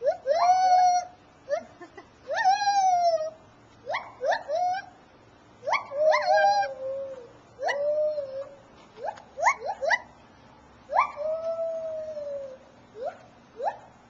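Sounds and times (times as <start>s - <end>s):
gibbon hooting calls: 5.6s - 10.1s, 10.9s - 13.9s.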